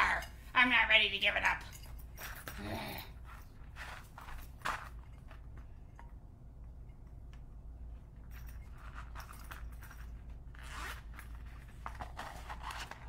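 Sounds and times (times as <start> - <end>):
scratchy rustling and scraping: 3.2 - 5.4, 8.6 - 13.0.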